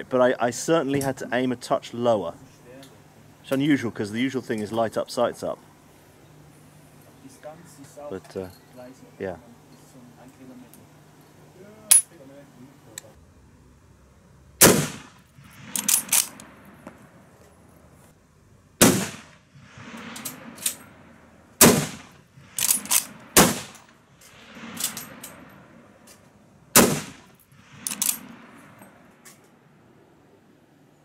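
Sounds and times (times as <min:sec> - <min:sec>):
rifle shots: 0:14.6 - 0:16.4, 0:18.8 - 0:20.8, 0:21.6 - 0:25.8, 0:26.7 - 0:29.0
rifle bolt metallic clack: 0:15.8 - 0:16.4, 0:22.6 - 0:23.1, 0:24.7 - 0:25.4, 0:27.8 - 0:28.3.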